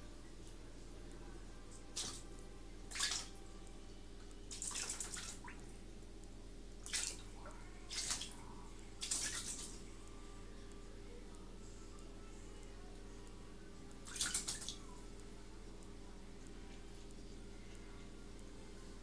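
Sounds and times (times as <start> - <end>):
low steady hum: 0.0 - 19.0
bathwater splashing and dripping: 1.9 - 2.3, 2.9 - 3.4, 4.5 - 5.7, 6.8 - 8.4, 9.0 - 9.8, 14.0 - 14.8.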